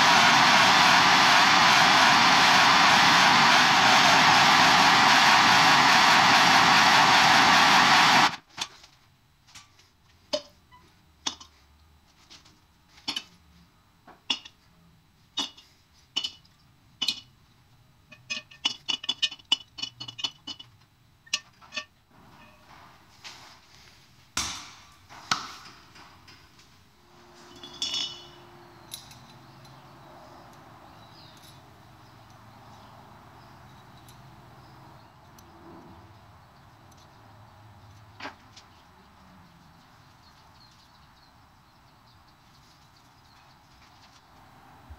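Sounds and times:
gas torch hissing: 0.0s - 8.4s.

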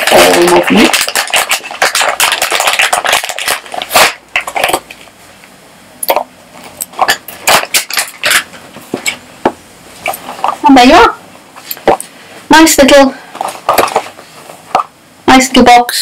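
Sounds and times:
foil-wrapped chocolates crinkling: 0.0s - 5.0s, 7.0s - 8.5s, 13.3s - 14.4s
plastic bag rustling: 0.0s - 5.1s, 6.6s - 9.2s, 9.9s - 10.8s, 13.2s - 14.9s.

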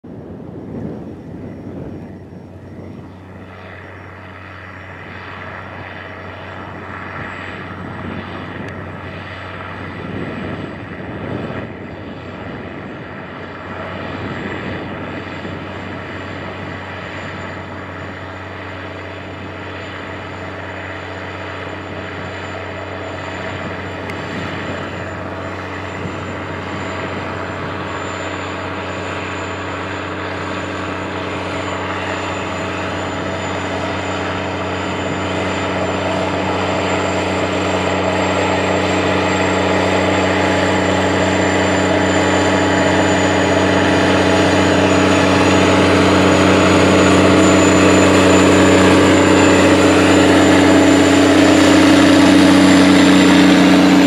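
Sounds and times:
tractor diesel engine under load: 12.4s - 54.0s.

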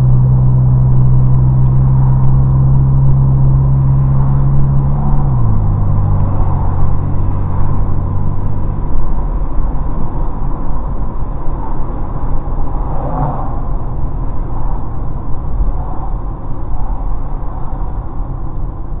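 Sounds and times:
car engine droning: 0.0s - 19.0s
road rumble: 0.0s - 19.0s.

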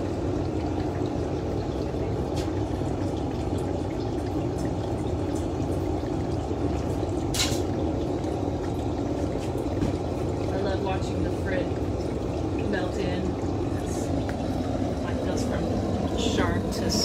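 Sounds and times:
gas burner rushing: 9.2s - 17.0s.

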